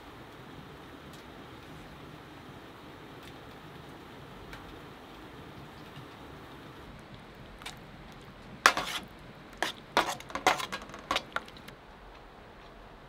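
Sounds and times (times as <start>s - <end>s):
utensils clinking on metal pan: 8.7s - 9.0s, 9.6s - 11.6s.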